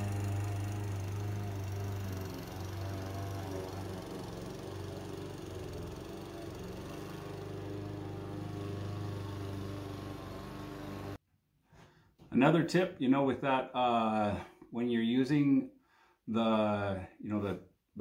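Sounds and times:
lawn mower running: 0.0 - 11.2.

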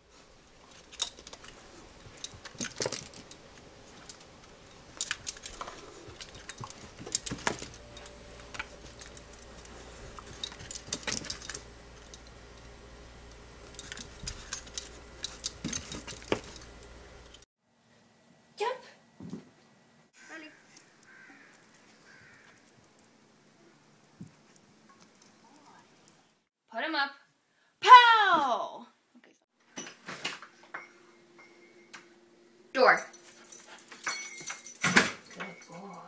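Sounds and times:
metal collar tags jingling: 0.4 - 12.6, 13.5 - 17.4, 32.9 - 36.0.

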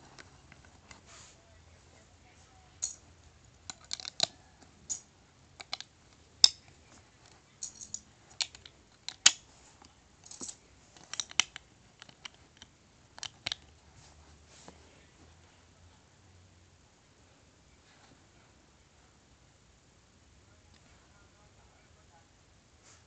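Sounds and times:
plastic bricks clicking: 3.6 - 5.0, 5.6 - 6.7, 7.6 - 9.4, 10.3 - 13.7.

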